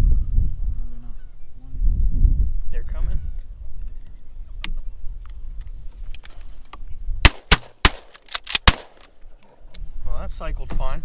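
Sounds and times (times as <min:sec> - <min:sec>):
rapid shotgun shots: 0:07.2 - 0:09.1.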